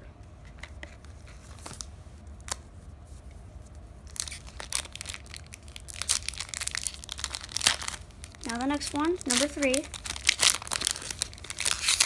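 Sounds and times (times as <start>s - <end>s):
foil pack crinkling and tearing: 4.0s - 12.0s.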